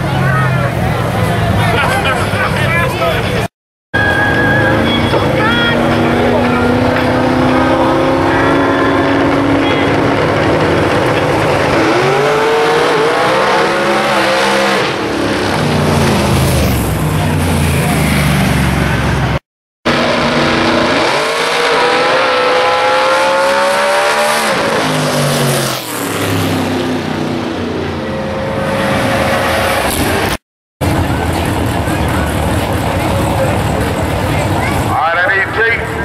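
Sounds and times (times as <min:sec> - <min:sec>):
another engine tone: 0:04.0 - 0:12.3, 0:26.4 - 0:35.6
drag racing car accelerating: 0:04.0 - 0:36.0.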